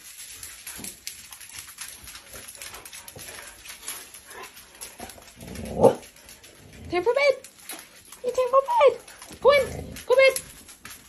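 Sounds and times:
dog claws clicking on floor: 0.0s - 11.0s.

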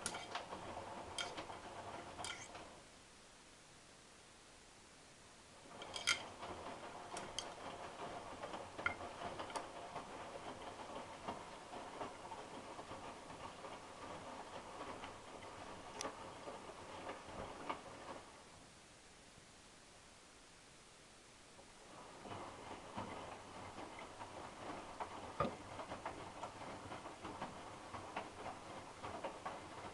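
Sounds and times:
clicks and rattles: 0.0s - 2.7s, 5.7s - 11.4s
washing machine drum tumbling: 0.0s - 2.8s, 5.6s - 18.4s, 21.9s - 29.9s.

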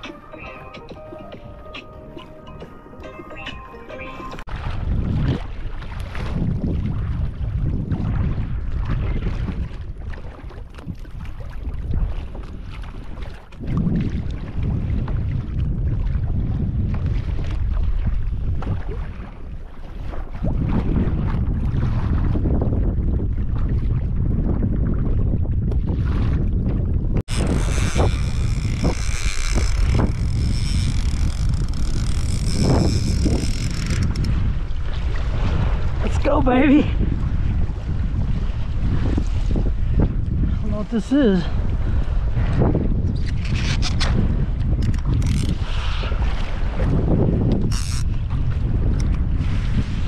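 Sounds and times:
water splashes: 0.0s - 50.0s
waves slapping against kayak hull: 4.2s - 50.0s
wind buffeting microphone: 4.3s - 50.0s.

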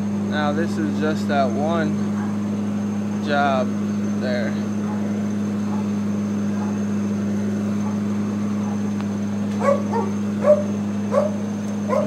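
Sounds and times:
cleaning machine humming: 0.0s - 12.0s
dog yelps: 6.6s - 6.8s, 9.6s - 12.0s.

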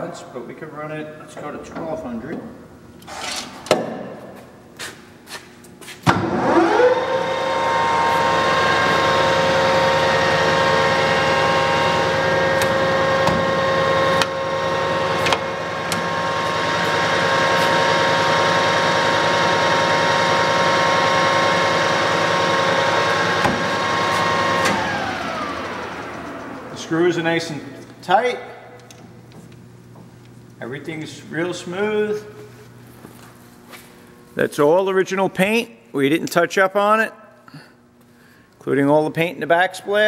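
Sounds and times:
lathe spindle humming: 6.5s - 28.0s.

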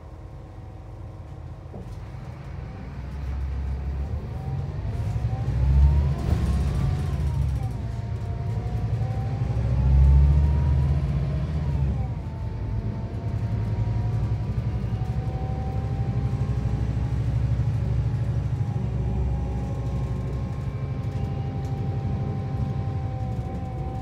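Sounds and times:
heavy low diesel rumble: 0.0s - 24.0s.

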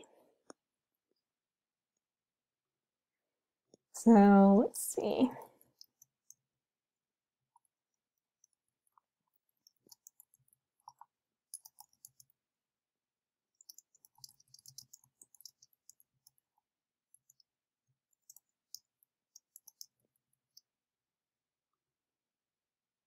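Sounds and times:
faint keyboard typing: 8.4s - 12.3s, 13.6s - 16.4s, 18.1s - 20.7s.

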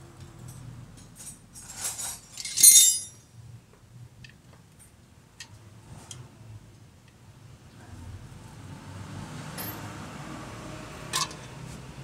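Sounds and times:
metal hand tools clinking: 1.6s - 3.2s.

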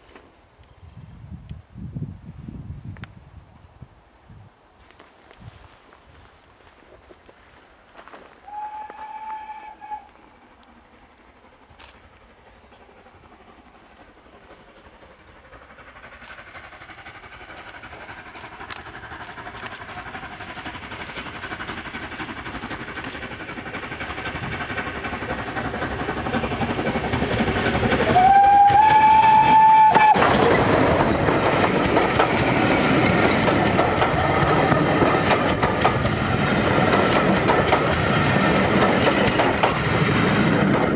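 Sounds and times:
steam locomotive approaching: 0.0s - 40.9s
steam locomotive whistle: 8.4s - 10.4s, 27.9s - 30.4s
wheel clatter on rails: 29.8s - 40.9s.

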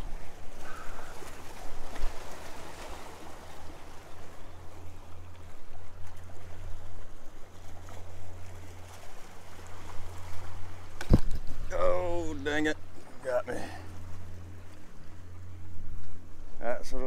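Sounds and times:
sea water splashing on rocks: 0.2s - 3.8s
steady low rumble: 3.0s - 17.0s.

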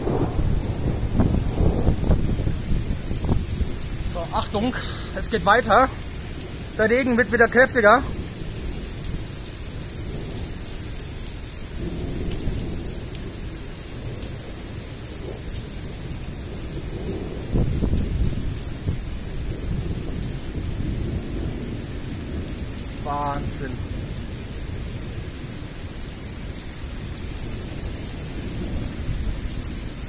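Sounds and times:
loud thunder peal: 0.0s - 3.4s
thunder rumbling: 0.0s - 10.6s, 11.7s - 25.8s
heavy rain falling: 0.0s - 30.0s.

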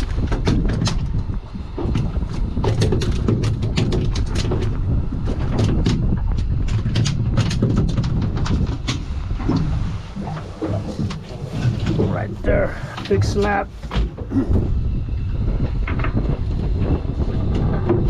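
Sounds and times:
steady low rumble: 0.0s - 18.0s.

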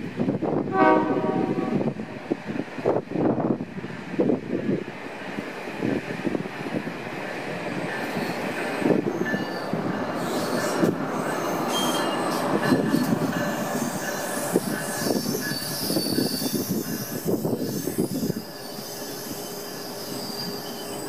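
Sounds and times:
train rumble: 0.0s - 21.0s
train wheels squealing: 7.9s - 21.0s.

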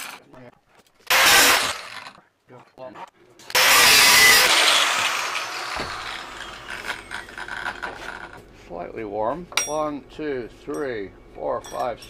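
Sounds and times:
angle grinder cutting steel: 1.1s - 2.1s, 3.5s - 8.2s
grinder spinning down whine: 3.6s - 7.7s.

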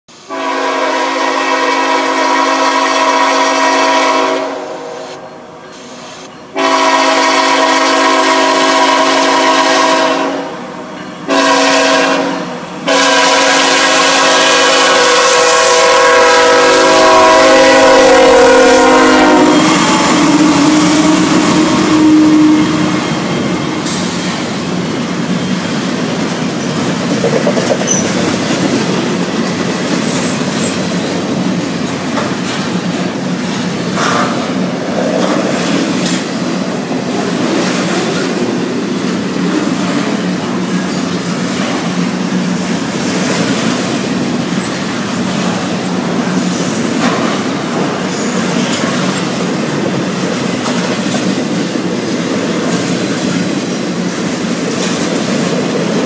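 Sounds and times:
locomotive air horn blasts: 0.3s - 23.2s
train wheels clattering on rails: 22.6s - 56.0s.

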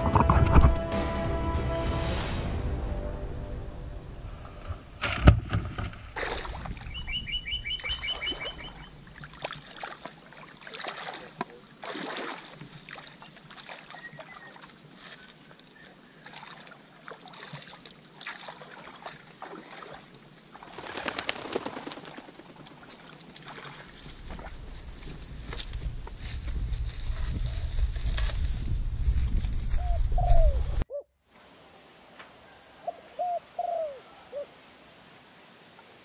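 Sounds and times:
footsteps wading through muddy water: 6.2s - 30.6s
bird chirping: 6.8s - 9.0s, 13.9s - 14.6s
brushing through vegetation: 18.3s - 30.8s.

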